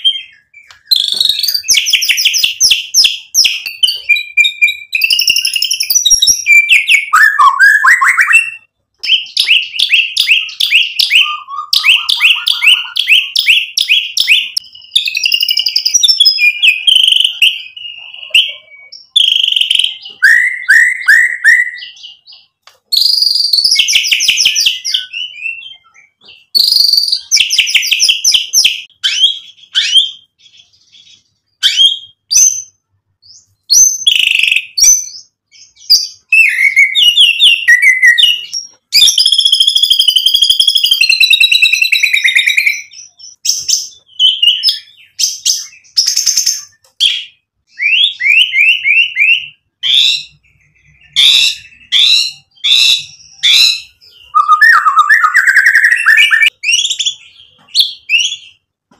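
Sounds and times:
bird singing: 0:00.0 - 0:58.9.

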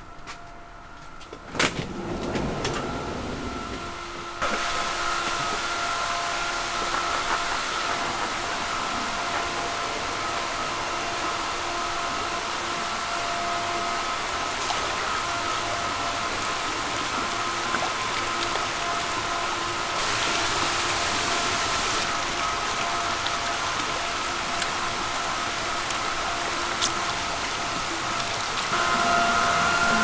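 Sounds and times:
constant whine: 0:00.0 - 0:30.0
pump machinery: 0:01.3 - 0:30.0
water rushing: 0:14.1 - 0:30.0.

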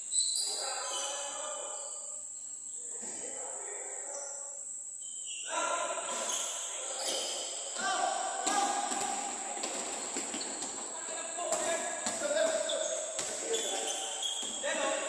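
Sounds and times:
steady high hiss: 0:00.0 - 0:15.0
players calling out: 0:05.3 - 0:15.0
basketball bouncing on court: 0:11.5 - 0:14.6.

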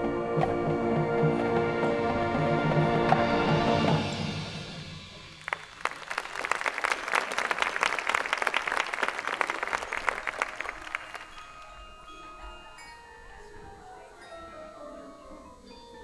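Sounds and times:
marching band chord: 0:00.0 - 0:05.5
audience applause: 0:05.3 - 0:11.6.

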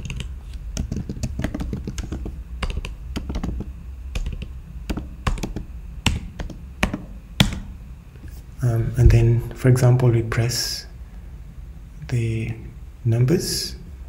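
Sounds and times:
computer keyboard typing: 0:00.0 - 0:07.7.

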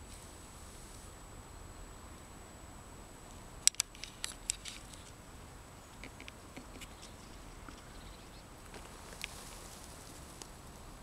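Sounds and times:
grass brushing microphone: 0:00.0 - 0:01.2, 0:05.8 - 0:11.0.

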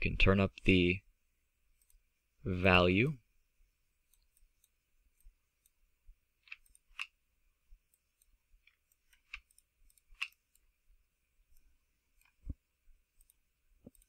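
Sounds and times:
faint computer mouse clicks: 0:06.5 - 0:07.2, 0:13.2 - 0:14.0.

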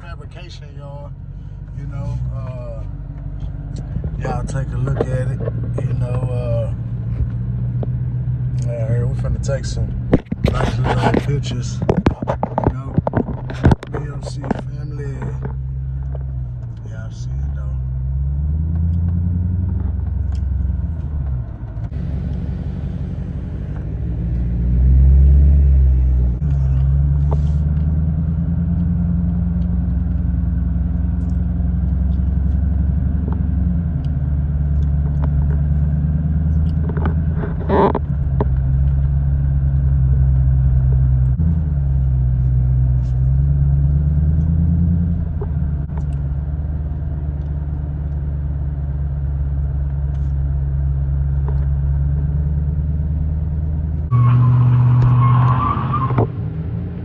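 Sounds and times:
car engine running inside cabin: 0:00.0 - 0:57.0
truck engine revving: 0:12.7 - 0:57.0
tyres squealing: 0:54.1 - 0:56.2.

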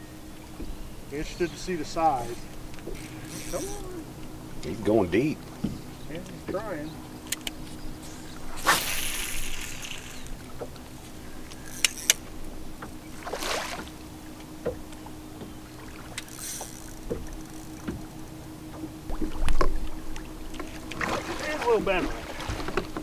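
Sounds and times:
electric trolling motor humming: 0:00.0 - 0:23.0
water splashing hiss: 0:08.5 - 0:10.4
sharp clicks: 0:11.5 - 0:12.2.

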